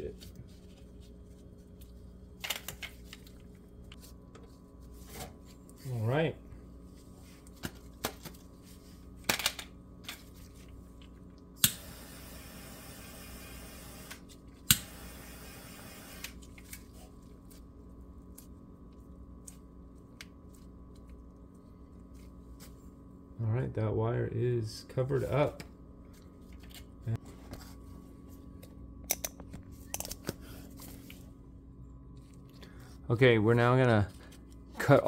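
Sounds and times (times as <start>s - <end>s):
torch hissing: 11.6s - 16.4s.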